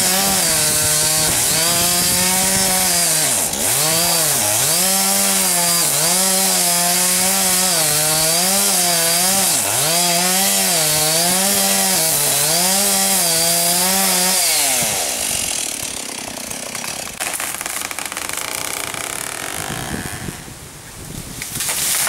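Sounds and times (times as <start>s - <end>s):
chainsaw cutting wood: 0.0s - 20.6s, 21.4s - 22.0s
sharp crack: 16.8s - 20.0s, 21.4s - 22.0s.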